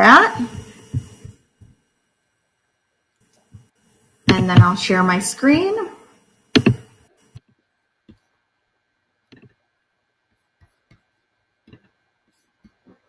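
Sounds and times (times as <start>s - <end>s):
computer clicks: 6.6s - 6.9s.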